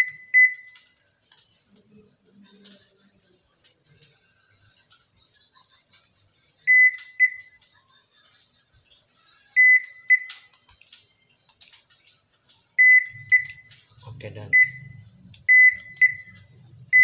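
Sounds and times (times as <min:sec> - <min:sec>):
washing machine beeping: 0:00.0 - 0:01.8, 0:06.6 - 0:07.6, 0:09.5 - 0:10.6, 0:12.8 - 0:17.0.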